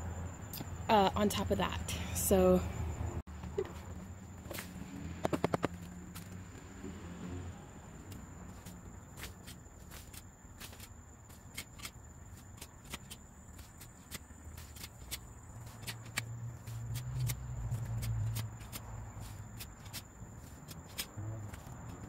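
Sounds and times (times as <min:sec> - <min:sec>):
sharp ticks of tines: 0:08.1 - 0:22.0
pitchfork scraping soil: 0:08.5 - 0:22.0.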